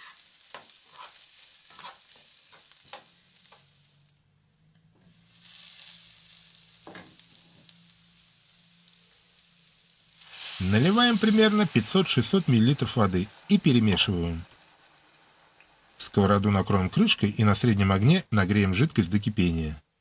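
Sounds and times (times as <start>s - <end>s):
metal spoon scraping a pan: 0.0s - 3.1s
food sizzling in oil: 0.0s - 4.2s, 5.1s - 20.0s.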